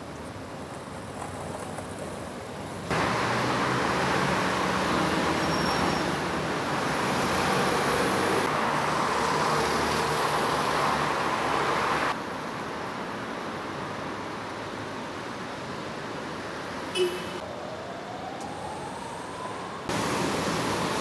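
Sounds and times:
traffic on a wet road: 0.0s - 21.0s.

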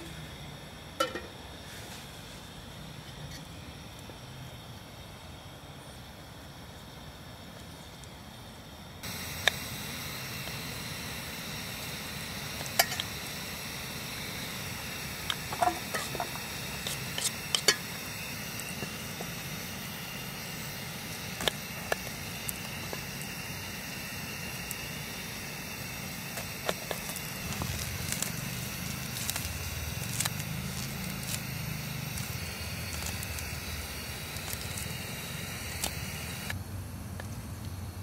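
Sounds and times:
food sizzling with crackles and pops: 7.4s - 36.6s.

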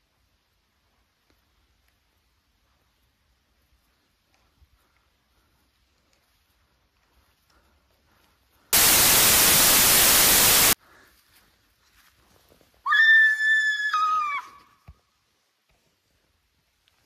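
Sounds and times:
static hiss: 8.8s - 10.8s.

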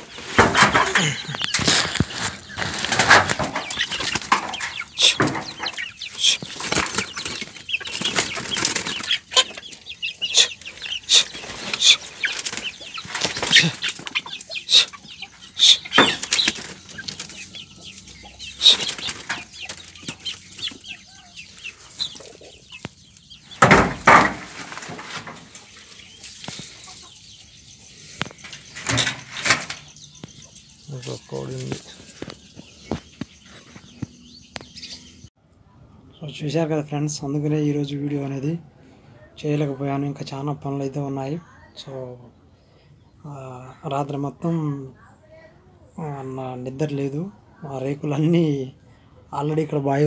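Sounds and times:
plastic sheeting rustling: 1.5s - 3.6s.

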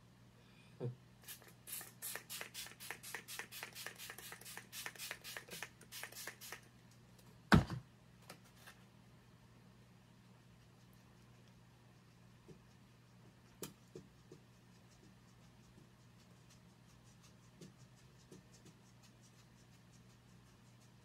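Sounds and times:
pump spray hissing: 1.2s - 6.6s.

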